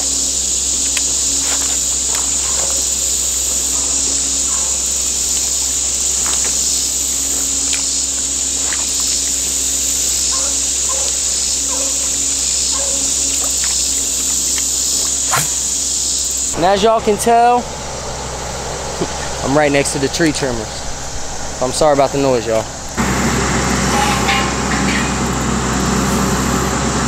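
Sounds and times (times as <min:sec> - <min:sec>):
insects buzzing: 0:00.0 - 0:27.0
tree-trimming engine drone: 0:00.0 - 0:27.0
dog baying: 0:02.2 - 0:06.4, 0:07.2 - 0:15.7.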